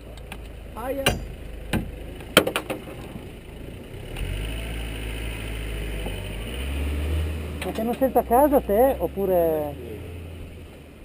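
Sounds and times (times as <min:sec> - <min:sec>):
race car engine idling: 0:00.0 - 0:04.1
sharp knocks: 0:01.0 - 0:03.3.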